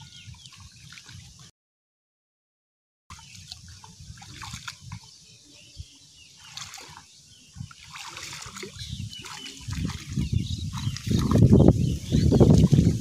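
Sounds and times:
hands splashing in shallow water: 3.1 - 5.1, 6.4 - 13.0.

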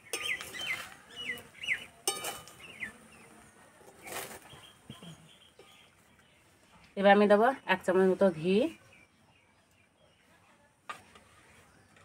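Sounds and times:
metal spatula scraping a wok: 0.0 - 1.0, 2.0 - 2.7
small birds chirping: 0.0 - 12.0.

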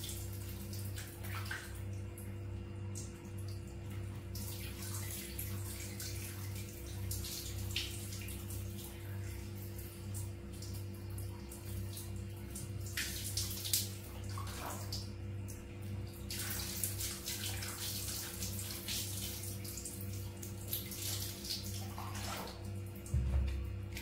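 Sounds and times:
water pouring and splashing: 0.0 - 2.1, 3.0 - 24.0.

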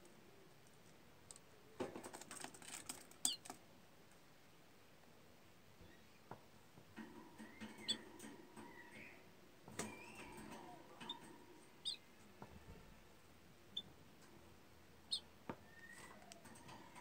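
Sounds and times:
budgerigars twittering: 11.8 - 12.0.

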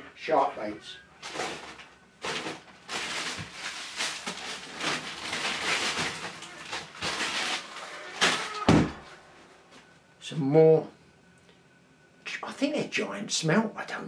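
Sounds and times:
frozen packs rustling and scraping: 1.2 - 9.3.

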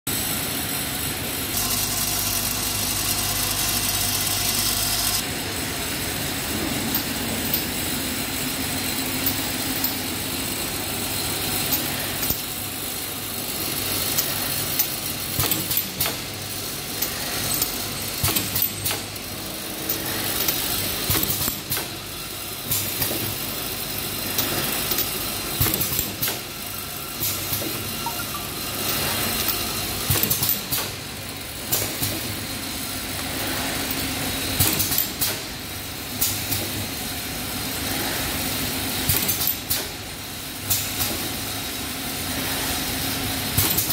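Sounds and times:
machine clicks and knocks: 14.0 - 16.3, 17.0 - 19.2, 19.8 - 22.0, 22.6 - 23.5, 24.3 - 26.5, 28.8 - 31.0, 31.6 - 32.4, 34.6 - 35.5, 39.1 - 40.0, 43.6 - 43.9.

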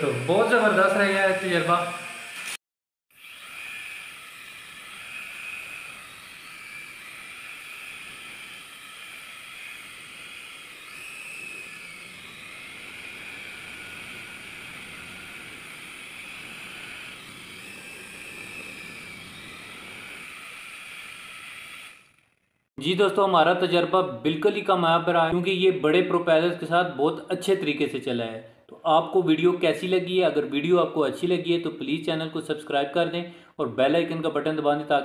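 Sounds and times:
toy helicopter motor whine: 0.0 - 22.7.

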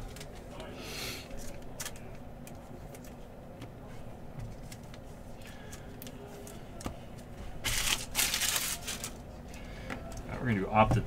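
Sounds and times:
cards rustling: 1.3 - 3.2, 4.5 - 9.6.

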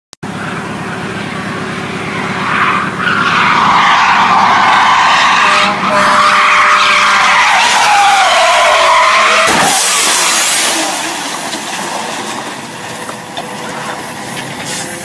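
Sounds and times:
car tyres squealing: 0.3 - 15.0
sudden loud burst of noise: 7.6 - 12.8.

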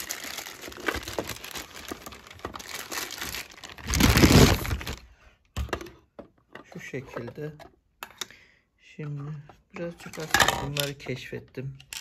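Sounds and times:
plastic bag crinkling: 0.0 - 5.1.

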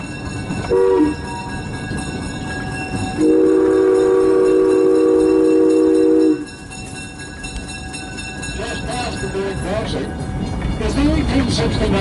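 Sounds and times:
train rumbling and rattling: 0.0 - 12.0
locomotive whistle chord: 0.7 - 1.5, 3.2 - 6.6.

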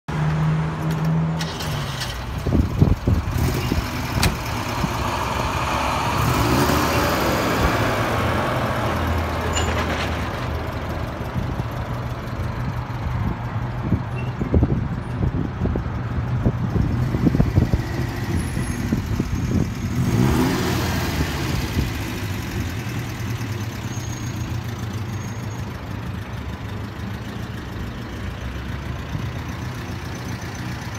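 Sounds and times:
car engine idling: 10.5 - 17.8, 21.8 - 30.9.

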